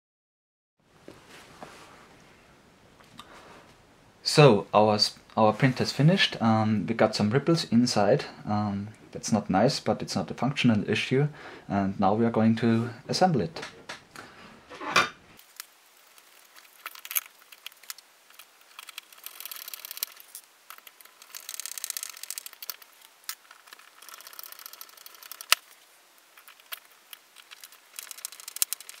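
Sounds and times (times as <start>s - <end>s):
small clicks of parts handled: 15.5s - 25.6s, 26.3s - 29.0s.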